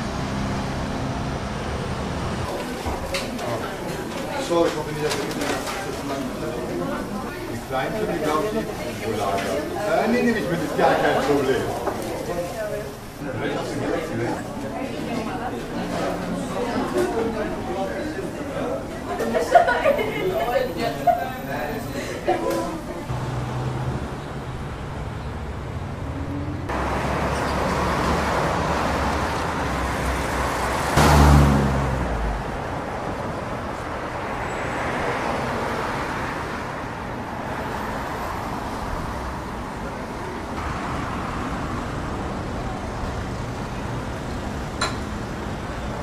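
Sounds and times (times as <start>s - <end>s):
cars driving past: 0.0s - 12.1s, 19.4s - 46.0s
vehicle passing close: 23.1s - 33.4s.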